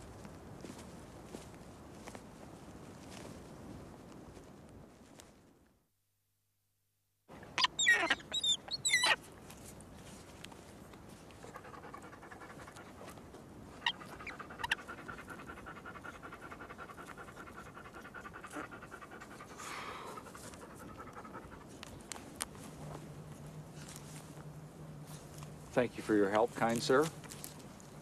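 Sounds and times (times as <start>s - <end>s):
high wavering animal cries: 7.5s - 9.2s, 13.8s - 18.9s
animal panting: 11.3s - 22.2s.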